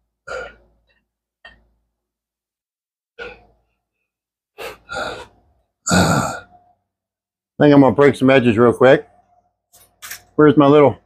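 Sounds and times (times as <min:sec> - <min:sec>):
man breathing heavily: 0:04.5 - 0:05.4.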